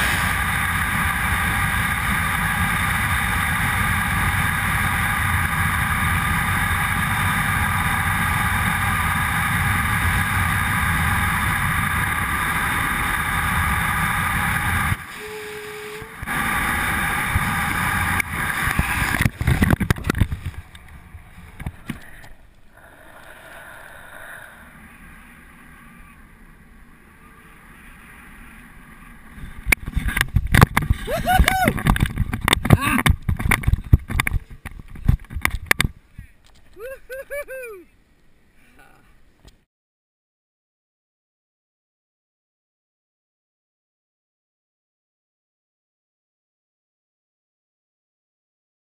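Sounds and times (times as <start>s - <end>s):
wind rushing over helmet: 0.0s - 22.0s, 29.2s - 36.0s.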